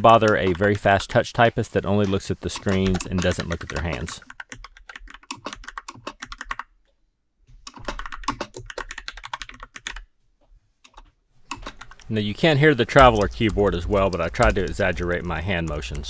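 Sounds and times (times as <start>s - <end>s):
mechanical keyboard typing: 0.0s - 1.0s, 1.9s - 6.7s, 7.7s - 10.0s, 10.9s - 16.0s.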